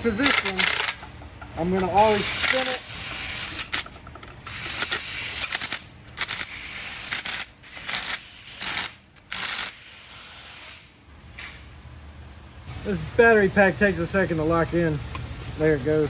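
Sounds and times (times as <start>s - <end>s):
hand ratchet clicking: 0.0s - 10.0s.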